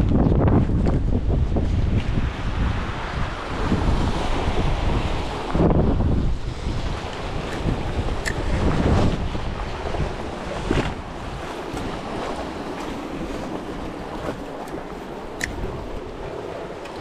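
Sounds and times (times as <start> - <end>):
sea waves washing onto shore: 0.0 - 17.0
wind buffeting the microphone: 0.0 - 17.0.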